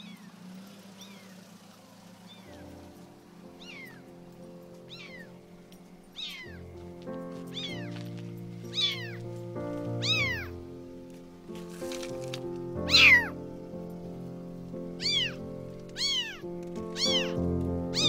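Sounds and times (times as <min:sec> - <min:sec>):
background music: 0:02.5 - 0:18.0
kitten meowing: 0:03.6 - 0:04.0, 0:04.9 - 0:05.3, 0:06.2 - 0:06.6, 0:07.6 - 0:07.9, 0:08.7 - 0:09.2, 0:10.0 - 0:10.5, 0:12.9 - 0:13.4, 0:15.0 - 0:18.0.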